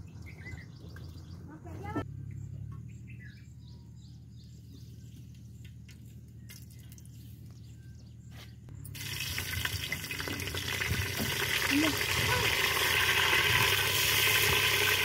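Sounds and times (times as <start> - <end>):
chillies sizzling in hot oil: 9.0 - 15.0.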